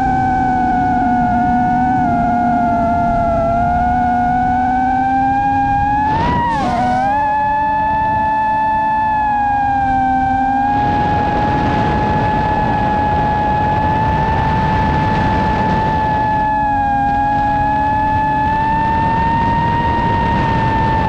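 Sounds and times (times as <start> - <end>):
drone motors whining: 0.0 - 21.0.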